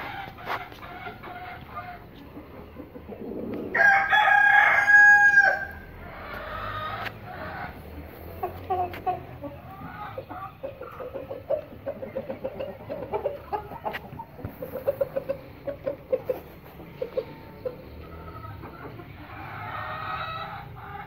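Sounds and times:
hens clucking: 0.0s - 21.0s
rooster crowing: 3.7s - 5.9s.

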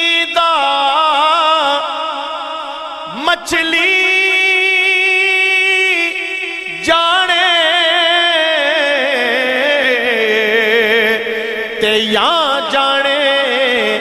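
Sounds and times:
man singing solo: 3.0s - 14.0s.

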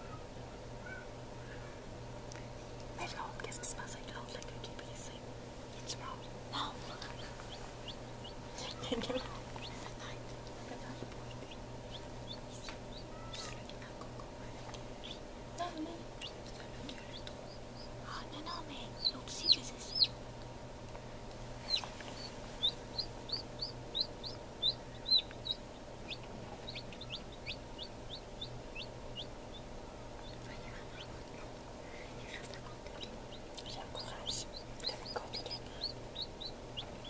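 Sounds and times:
steady low hum: 0.0s - 37.0s
chick peeping: 5.9s - 10.0s, 10.9s - 15.3s, 16.1s - 20.2s, 21.6s - 31.6s, 32.3s - 37.0s.

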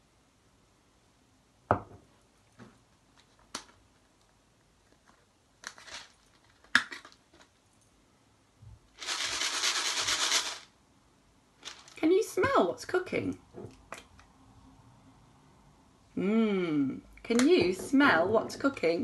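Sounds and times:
jar of dry contents rattling: 9.0s - 10.7s.

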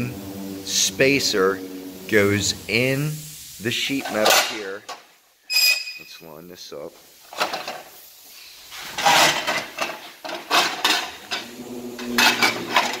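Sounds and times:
low steady hum: 0.0s - 4.6s
sheet metal clattering and scraping: 7.3s - 7.9s, 8.7s - 13.0s.

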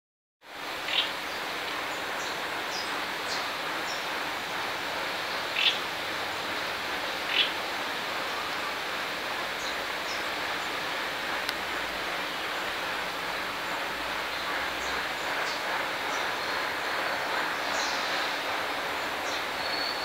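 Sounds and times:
steady background hiss: 0.5s - 20.0s
bird chirps: 19.3s - 20.0s.

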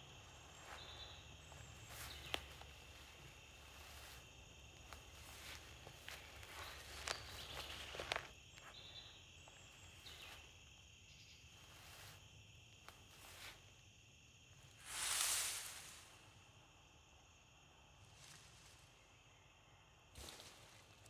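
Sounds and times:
insects chirring: 0.0s - 21.0s
rustling steps on forest floor: 0.2s - 10.6s, 11.4s - 13.8s.

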